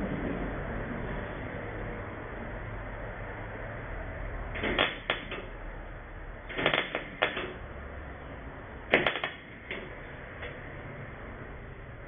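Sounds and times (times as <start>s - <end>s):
welder crackling: 4.4s - 12.0s.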